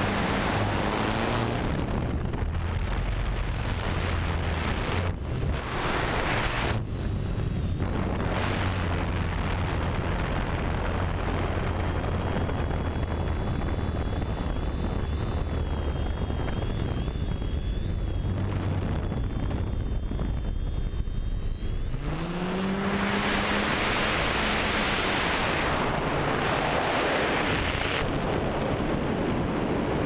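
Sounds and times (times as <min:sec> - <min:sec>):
drone motors and propellers: 0:00.0 - 0:30.0
wind on microphone: 0:00.0 - 0:30.0
thin high whine: 0:12.9 - 0:28.2.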